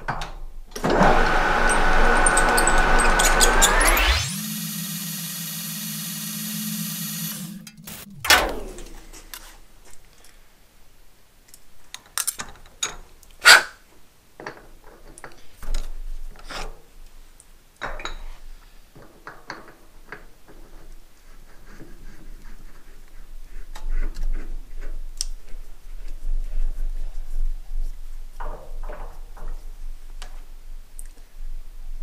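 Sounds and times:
metal lathe whining: 0.8s - 9.4s.

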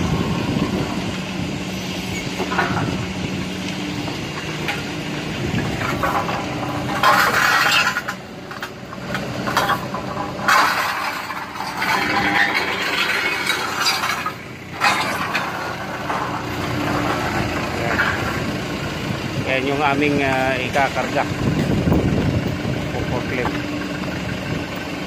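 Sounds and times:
forklift engine humming: 0.0s - 25.0s
clinking and rattling: 2.1s - 3.2s, 3.8s - 18.6s.

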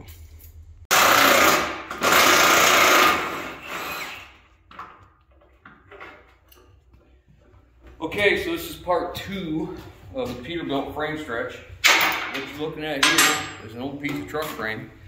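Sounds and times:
cordless power tool running: 0.9s - 4.4s.

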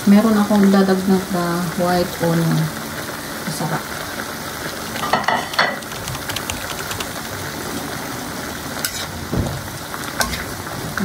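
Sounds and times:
food sizzling in a wok: 0.0s - 5.6s, 8.0s - 11.0s.

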